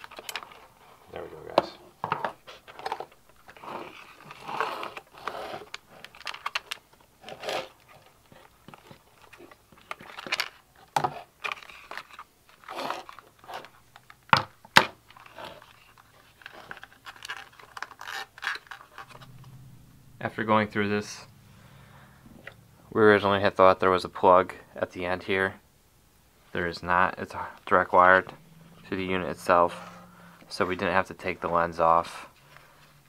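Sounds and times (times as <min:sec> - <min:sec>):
plastic parts crinkling and scraping: 0:00.0 - 0:19.4.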